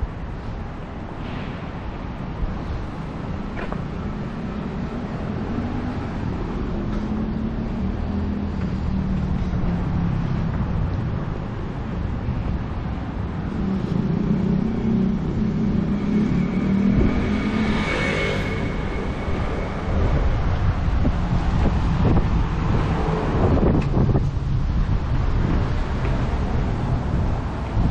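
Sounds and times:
vehicles passing: 0.0s - 27.9s
thin high steady tone: 15.6s - 21.4s.

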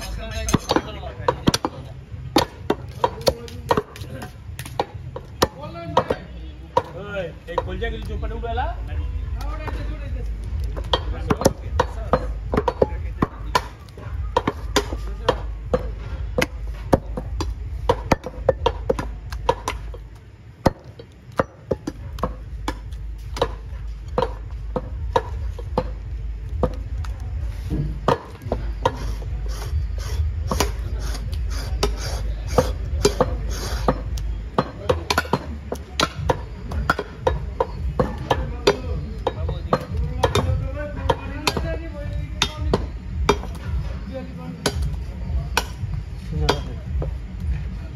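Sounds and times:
cleaver chopping on wooden block: 0.5s - 6.2s, 26.6s - 40.5s.

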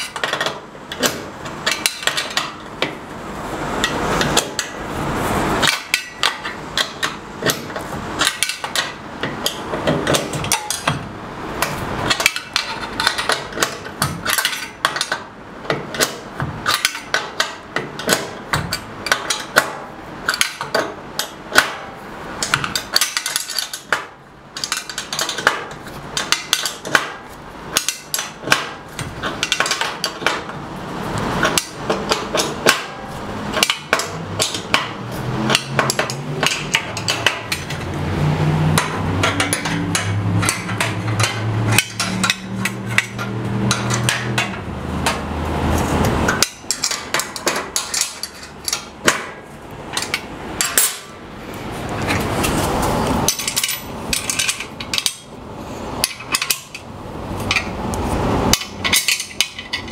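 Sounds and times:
wrench clicking on metal bolts: 0.0s - 3.0s, 3.8s - 4.8s, 5.6s - 21.8s, 22.4s - 30.6s, 31.3s - 51.2s, 53.2s - 55.4s, 56.0s - 59.9s.

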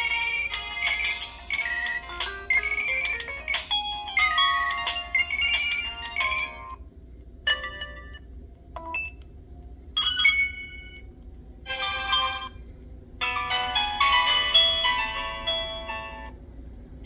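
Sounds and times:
polyphonic ringtone melody: 0.0s - 6.8s, 7.5s - 9.1s, 10.0s - 11.0s, 11.7s - 12.6s, 13.2s - 16.4s.

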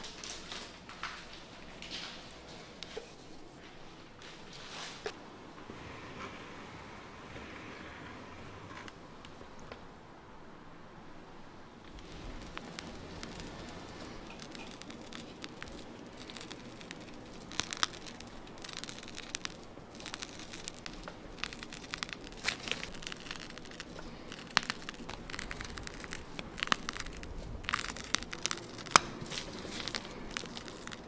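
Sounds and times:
plastic piping bag crinkling: 0.0s - 3.6s, 11.9s - 31.0s.

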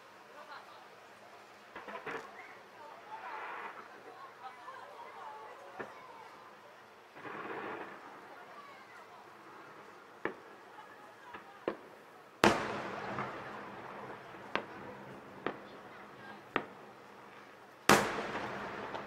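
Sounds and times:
sharp fireworks pops: 1.7s - 2.6s, 5.7s - 6.1s, 7.1s - 8.8s, 9.8s - 10.6s, 11.2s - 19.0s
fireworks loud bangs: 7.2s - 8.2s, 11.3s - 19.0s.

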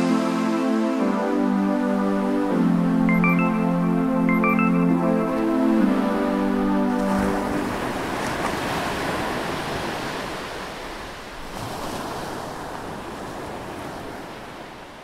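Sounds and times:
waves washing onto beach: 5.0s - 15.0s.

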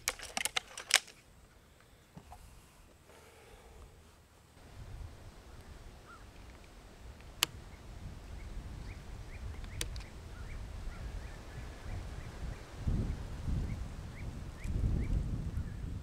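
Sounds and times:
air rifle magazine clicks: 0.0s - 1.2s
low wind rumble: 3.4s - 16.0s.

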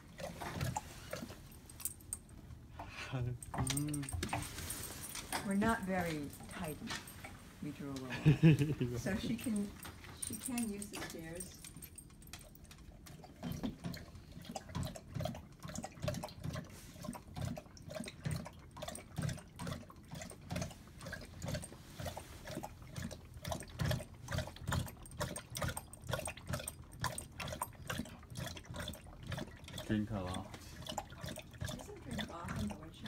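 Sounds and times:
dog lapping water: 0.0s - 1.8s, 9.0s - 33.0s.

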